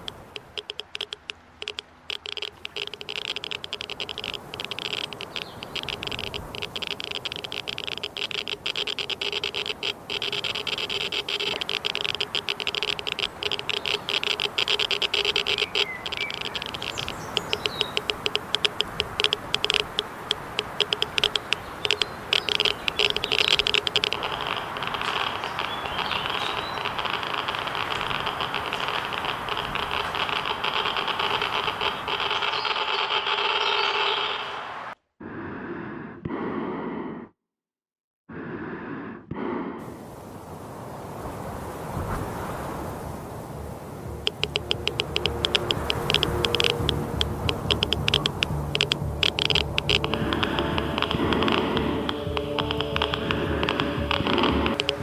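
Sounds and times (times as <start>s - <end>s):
steady drone: 0.0s - 32.4s, 43.5s - 55.0s
geiger counter clicking: 0.0s - 34.4s, 44.1s - 55.0s.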